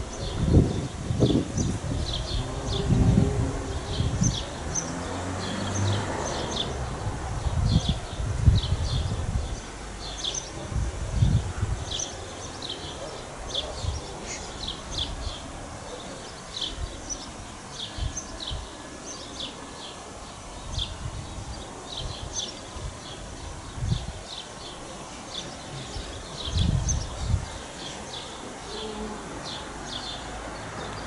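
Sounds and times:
wind buffeting microphone: 0.0s - 15.9s, 20.6s - 24.7s, 25.5s - 28.3s
small birds chirping: 7.4s - 31.0s.

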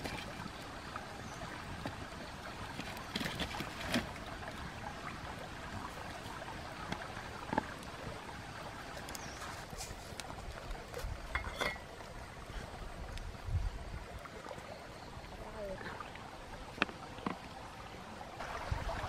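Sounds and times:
forest stream running: 0.0s - 19.0s
clay pot lid clinking: 11.3s - 11.9s.

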